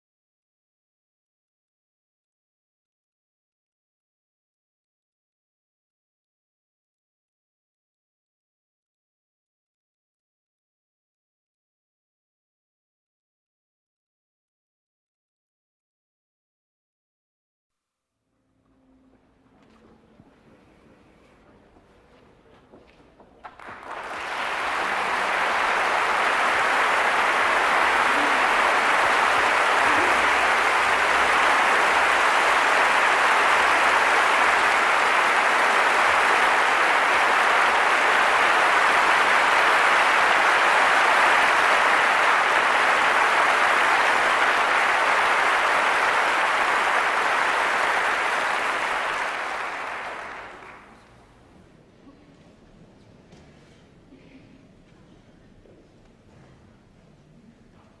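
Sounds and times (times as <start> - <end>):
audience applauding: 23.4 - 51.2.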